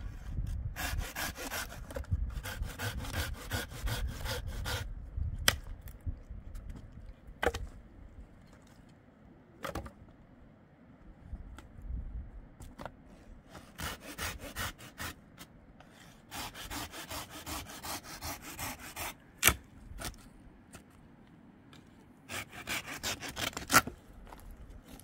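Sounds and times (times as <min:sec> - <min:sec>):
knife rasping on dry wood: 0:00.8 - 0:04.9, 0:13.6 - 0:15.2, 0:16.0 - 0:19.2, 0:22.3 - 0:23.8.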